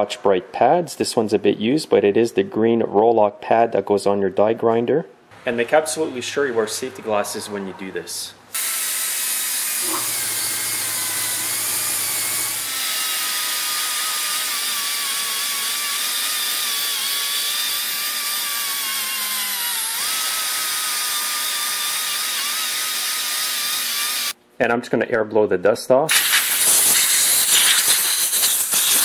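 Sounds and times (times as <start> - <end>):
die grinder whine: 8.6 - 24.4
abrasive pad scrubbing hiss: 26.1 - 29.0.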